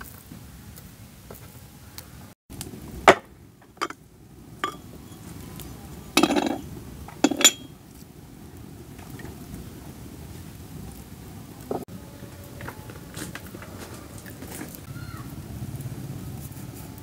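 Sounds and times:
clay pots clinking on wooden board: 4.6 - 4.9, 6.2 - 7.7.

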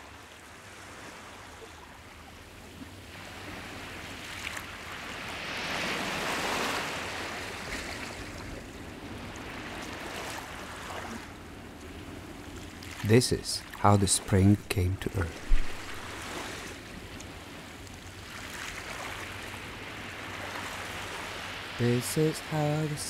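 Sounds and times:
sea surf wave washing: 12.8 - 23.0.

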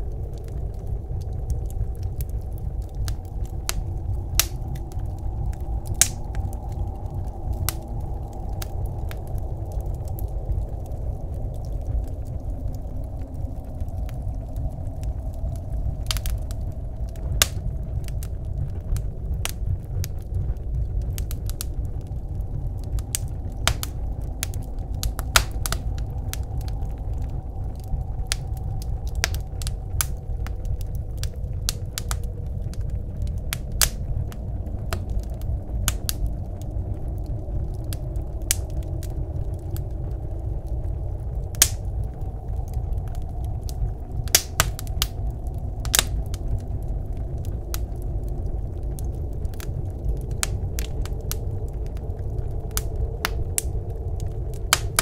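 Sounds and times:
blizzard wind rumble: 0.0 - 55.0
wood fire crackling: 0.0 - 55.0.

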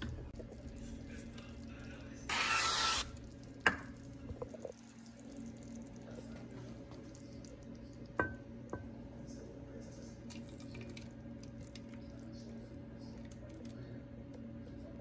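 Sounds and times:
cooking spray hissing: 2.3 - 3.2.

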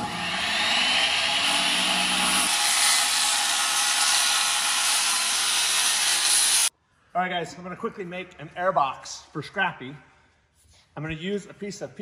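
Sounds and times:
circular saw cutting plastic pipe: 0.0 - 6.7.

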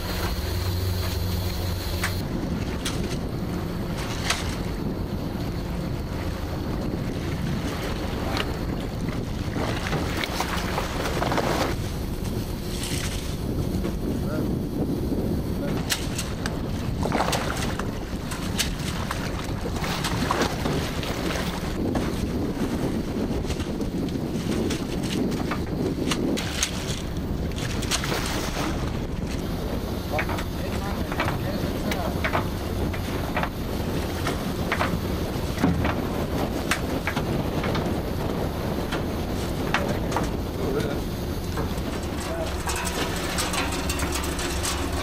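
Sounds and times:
water washing against hull: 0.0 - 45.0
wind buffeting microphone: 0.0 - 45.0
workboat engine rumble: 0.0 - 45.0
sharp clicks and knocks: 41.5 - 45.0.

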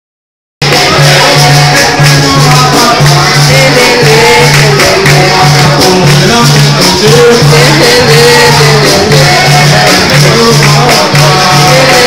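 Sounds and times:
group singing: 0.6 - 12.0.

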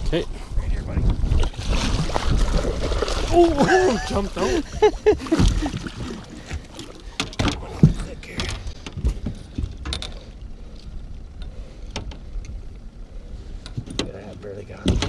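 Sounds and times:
water sloshing: 1.2 - 10.8.

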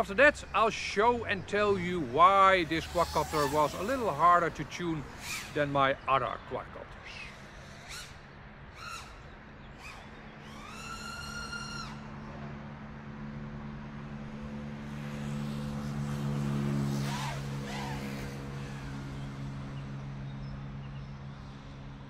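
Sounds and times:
drone propellers droning: 0.0 - 22.0
motor whines: 2.6 - 5.6, 9.8 - 12.1, 14.9 - 19.4.

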